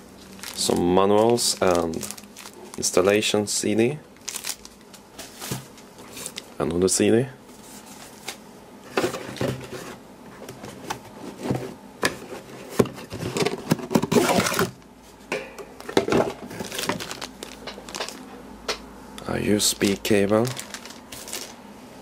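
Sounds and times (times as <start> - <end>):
rummaging in cardboard box: 0.3 - 2.9, 7.6 - 14.8, 15.8 - 18.2, 20.4 - 21.5.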